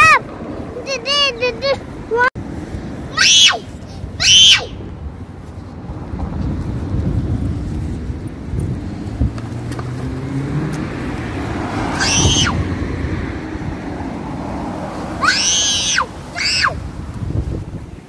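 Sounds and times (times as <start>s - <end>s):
wind buffeting microphone: 0.0s - 15.3s, 16.1s - 18.0s
short high arching cries: 3.1s - 4.8s, 11.8s - 12.7s, 15.2s - 16.9s.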